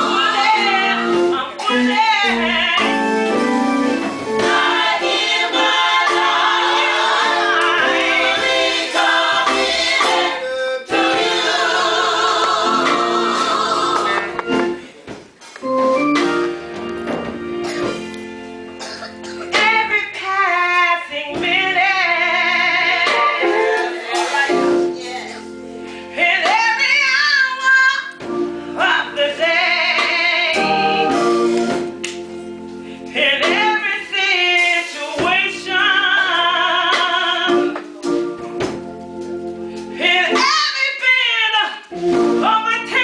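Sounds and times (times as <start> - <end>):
woman singing gospel: 0.0 - 3.4, 4.4 - 14.5, 19.5 - 31.6, 32.9 - 38.2, 39.8 - 43.0
organ chords: 0.0 - 43.0.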